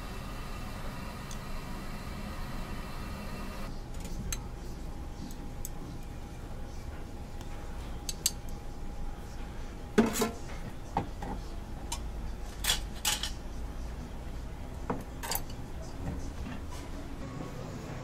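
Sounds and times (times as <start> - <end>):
dishes clinking on metal counter: 10.0 - 13.4.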